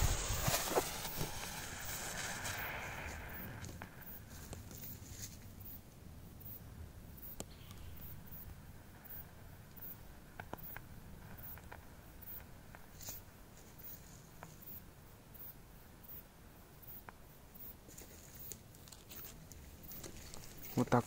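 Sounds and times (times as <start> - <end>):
faint ticks and clicks: 7.2 - 14.8.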